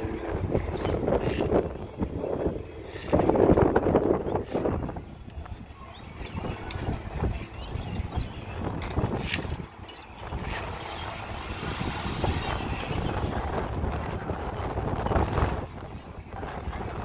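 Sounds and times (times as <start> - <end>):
wind on microphone: 0.0 - 17.0
carabiners clicking on steel cable: 0.8 - 1.7, 2.8 - 3.7, 4.4 - 5.4, 6.2 - 11.8.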